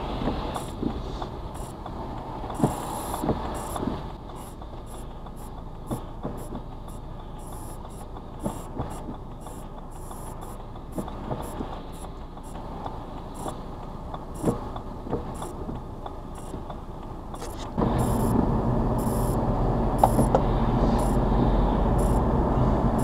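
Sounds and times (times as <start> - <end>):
car engine hum: 0.0 - 23.0
tyre noise on wet road: 0.0 - 23.0
faint irregular ticks: 0.5 - 18.3.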